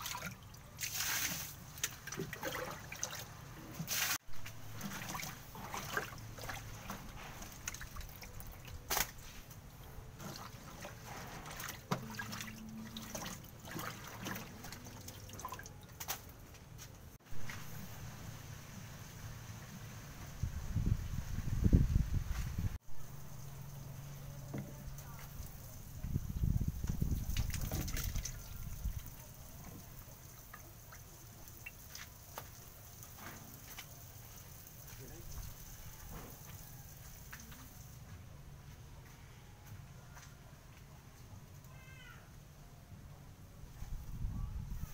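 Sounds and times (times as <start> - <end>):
shallow water splashing: 0.0 - 9.2, 10.2 - 15.9.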